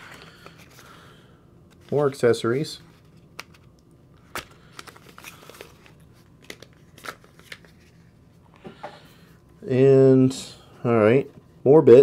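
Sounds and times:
cardboard and plastic rustling: 4.3 - 8.2.

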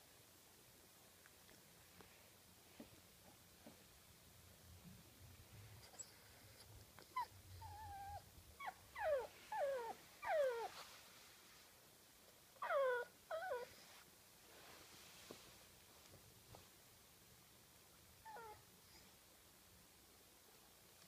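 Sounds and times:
small dog whining: 5.8 - 10.9, 12.6 - 14.0, 18.2 - 18.7.

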